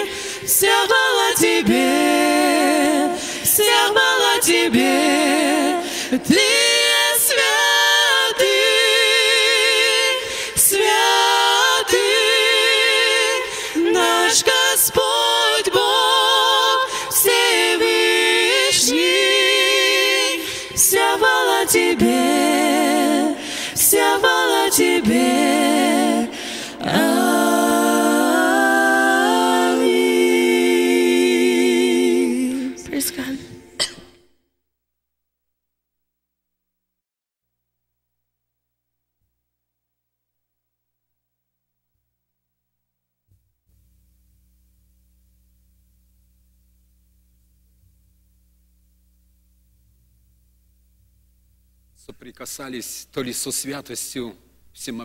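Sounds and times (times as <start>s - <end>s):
women singing a cappella: 0.0s - 34.0s.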